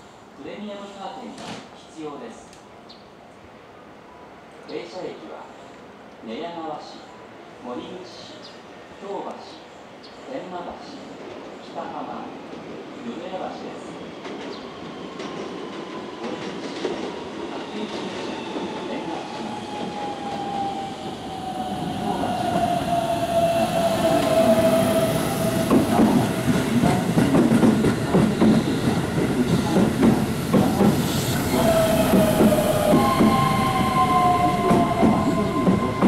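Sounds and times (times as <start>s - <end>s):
train wheels knocking over rail joints: 25.7s - 28.7s.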